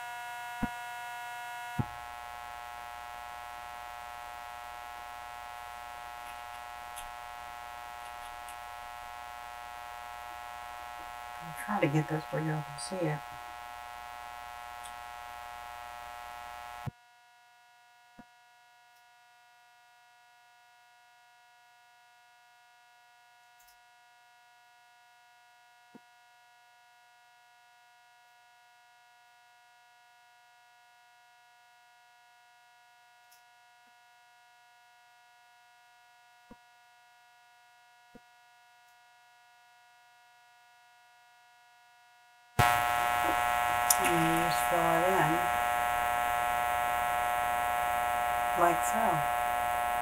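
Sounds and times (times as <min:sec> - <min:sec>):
tiny faint clicks: 0:08.0 - 0:08.7, 0:33.2 - 0:33.5
faint electrical hum: 0:42.6 - 0:50.0
louder hum: 0:42.6 - 0:50.0.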